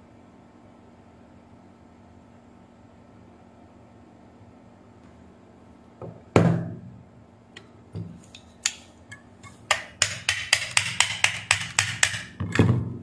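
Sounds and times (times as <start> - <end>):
tools tapping plastic case: 9.7 - 12.8.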